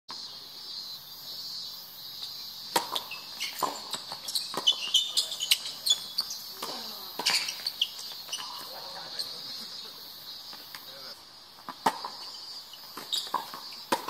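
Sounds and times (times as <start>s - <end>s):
insect chirps: 0.1s - 14.0s
insects droning high-pitched: 0.1s - 14.0s
tennis balls hit by rackets: 2.2s - 9.4s, 11.6s - 14.0s.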